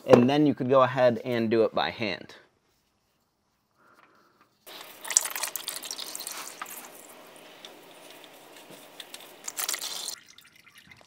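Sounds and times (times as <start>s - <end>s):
oil pouring and splashing: 4.7s - 11.0s.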